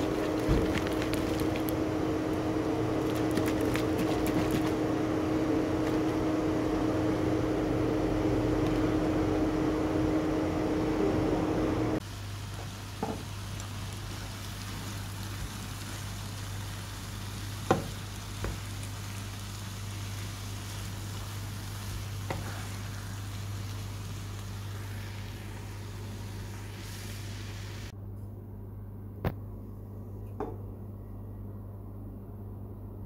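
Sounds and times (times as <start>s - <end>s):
low hum: 0.0s - 12.0s
food sizzling in a pan: 12.0s - 27.9s
wooden spatula knocking on pan: 17.7s - 18.6s.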